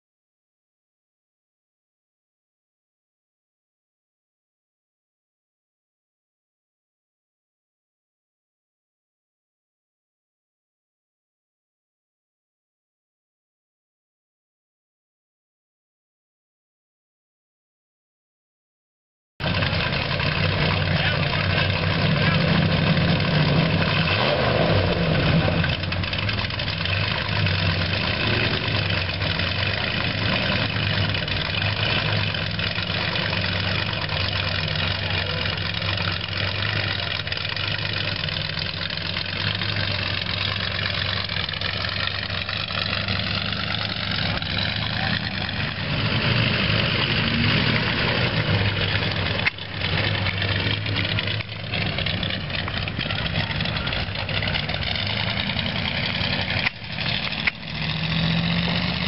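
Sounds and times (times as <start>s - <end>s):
truck engine running at low revs: 19.4s - 59.0s.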